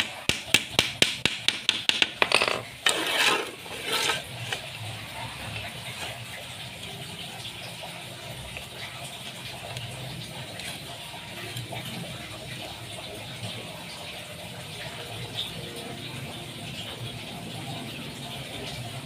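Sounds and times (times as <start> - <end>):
rapid sharp taps: 0.0 - 2.3
scraping: 2.2 - 4.6.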